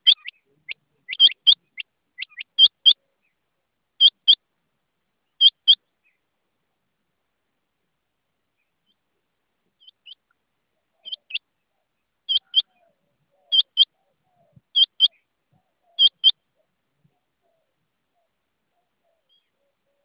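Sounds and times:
quail calling: 0.0s - 3.3s, 4.0s - 4.4s, 5.4s - 6.2s, 9.8s - 20.0s.

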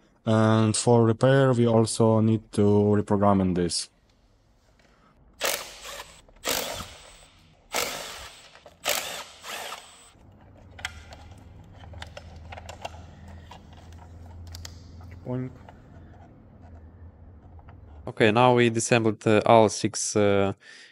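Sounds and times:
power tool undoing fasteners: 5.4s - 10.2s.

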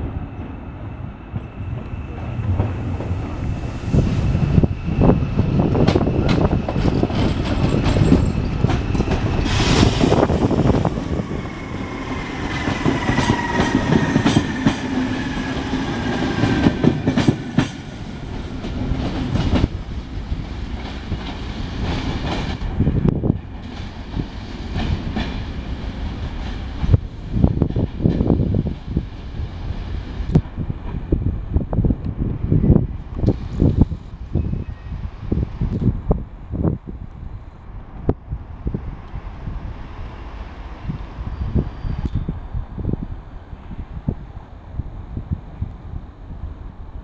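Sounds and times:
train wheels clattering: 5.6s - 10.7s, 11.9s - 19.8s
train whine falling in pitch: 7.9s - 17.3s.

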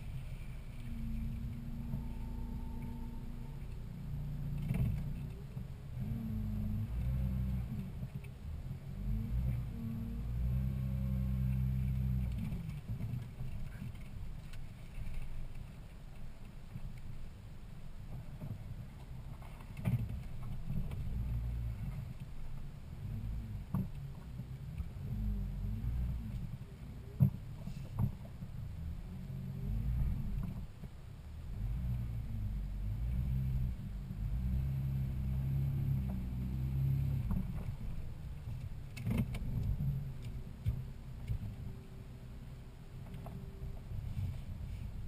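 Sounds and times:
engine and drivetrain rumble: 0.0s - 45.0s
knocks and clunks from bumps: 4.5s - 6.2s, 18.0s - 31.0s, 34.4s - 41.7s.

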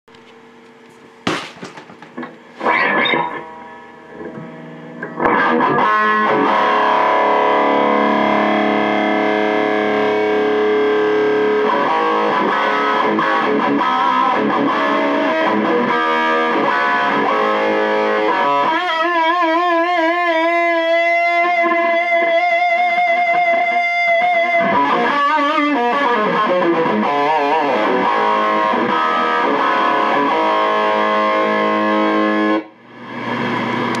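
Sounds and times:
amplifier hum: 0.1s - 18.3s, 30.4s - 34.0s
electric guitar chords and notes: 2.2s - 34.0s.

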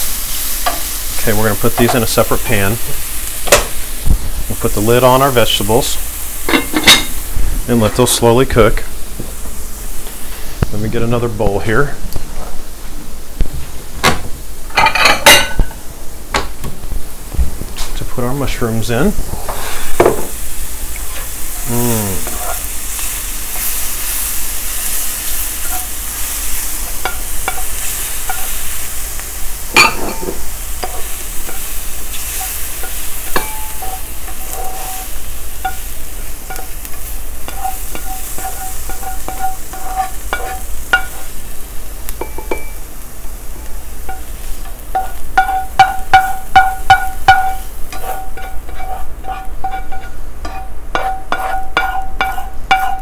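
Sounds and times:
mushrooms sizzling in a skillet: 0.0s - 53.0s
metal spoon scraping: 25.6s - 25.9s, 30.8s - 35.8s, 37.5s - 41.3s, 44.9s - 53.0s
spoon tapping on pan: 37.5s - 41.2s, 42.2s - 42.8s, 44.9s - 53.0s.

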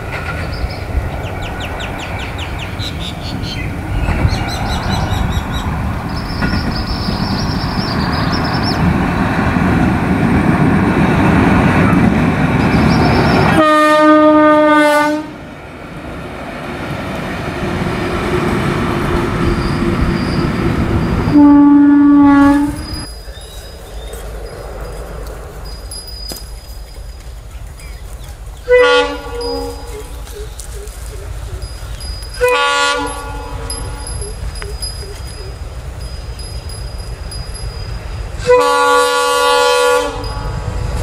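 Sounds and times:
locomotive wheels rumbling on rails: 0.0s - 41.0s
locomotive horn blasts: 13.5s - 15.4s, 21.2s - 23.1s, 28.6s - 30.1s, 32.4s - 34.2s, 38.4s - 40.6s.

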